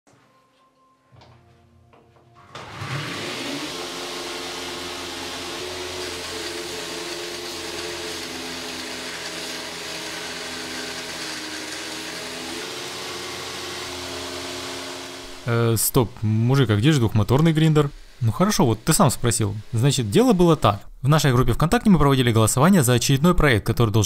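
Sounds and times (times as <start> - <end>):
electric motor humming: 2.5 - 15.8.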